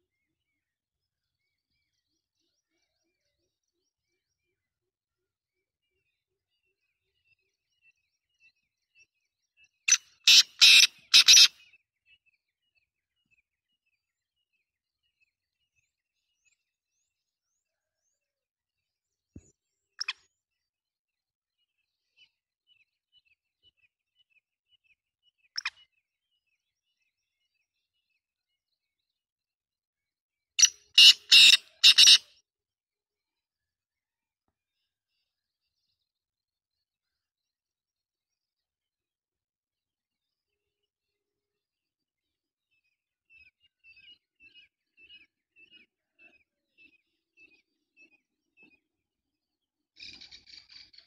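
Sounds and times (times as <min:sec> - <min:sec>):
bird calling harsh notes: 0:10.2 - 0:11.5, 0:30.6 - 0:32.2.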